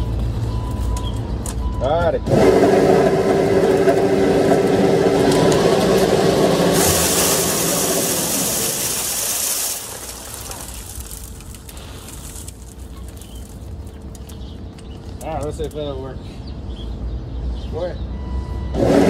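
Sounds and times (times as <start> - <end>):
feed pouring into plastic barrel: 3.6 - 12.7.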